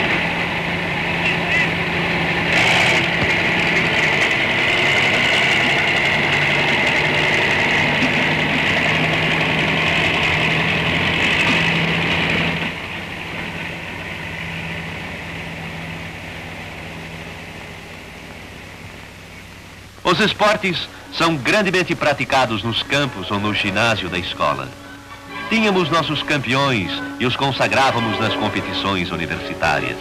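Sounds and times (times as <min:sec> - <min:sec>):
tractor engine running: 0:00.0 - 0:28.0
faint hiss: 0:13.1 - 0:30.0.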